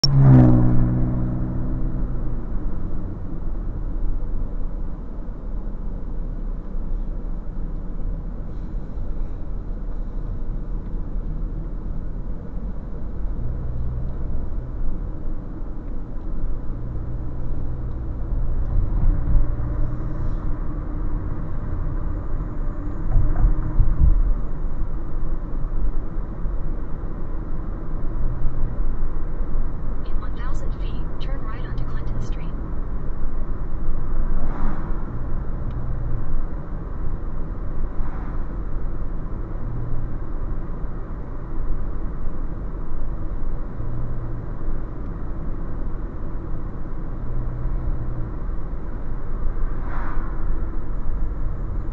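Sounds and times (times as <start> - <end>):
car cabin road and engine rumble: 0.0 - 51.9
low bumps: 17.8 - 26.2.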